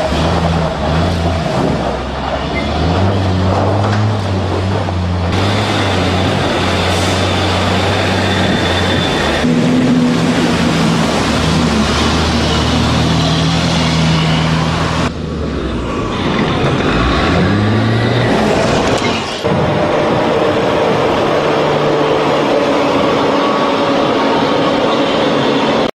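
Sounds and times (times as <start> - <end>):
diesel engine droning and revving: 0.0 - 25.9.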